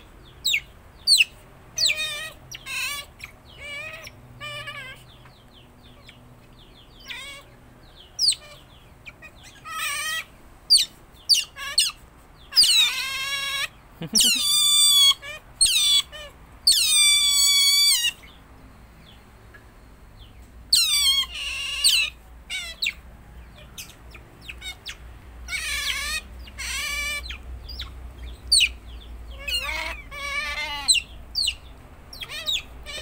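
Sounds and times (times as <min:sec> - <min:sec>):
otter chirping: 0:00.0 - 0:18.4, 0:19.0 - 0:33.0
otter squealing: 0:12.6 - 0:18.2, 0:29.4 - 0:31.1.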